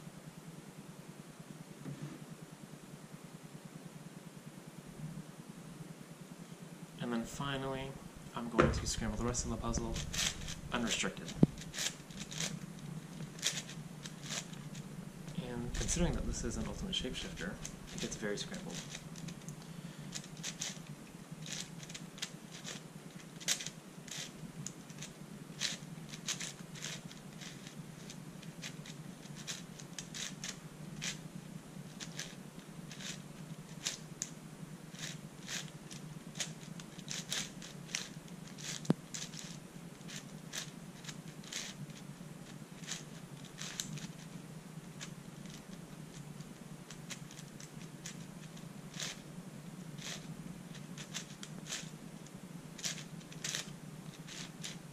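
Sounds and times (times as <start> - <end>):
plastic puzzle pieces clicking: 17.2 - 20.8, 32.0 - 34.3, 35.0 - 35.7, 36.4 - 41.8, 42.8 - 44.2, 50.0 - 51.9, 52.8 - 54.8.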